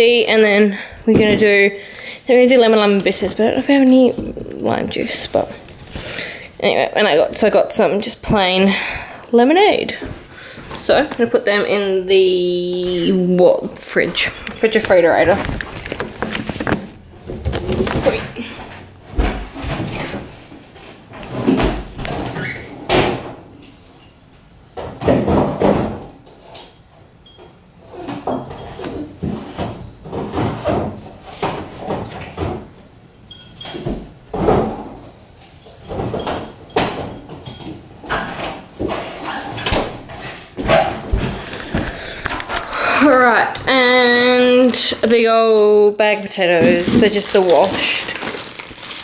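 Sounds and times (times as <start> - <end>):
bottles set onto shelves: 33.4 - 42.5.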